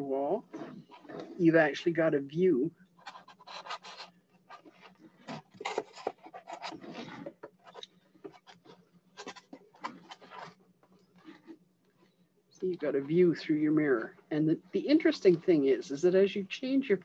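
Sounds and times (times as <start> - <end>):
light clicks taps and scrapes: 3.0 - 12.2.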